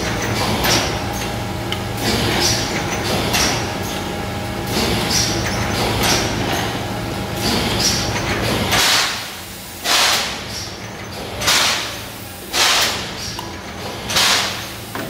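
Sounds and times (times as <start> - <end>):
machine mechanical hum: 0.0 - 15.0
compressed air hisses: 11.6 - 13.2.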